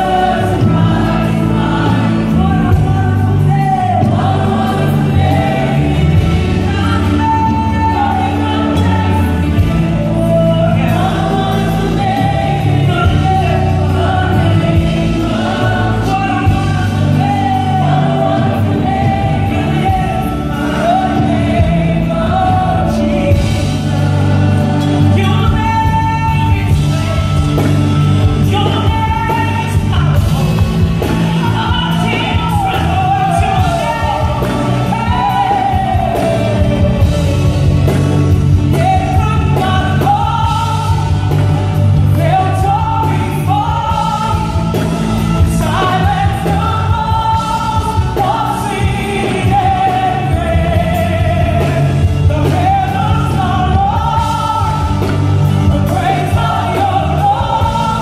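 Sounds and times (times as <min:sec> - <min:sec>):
women singing into microphones: 0:00.0 - 0:27.2, 0:28.4 - 0:58.0
band playing with bass: 0:00.0 - 0:58.0.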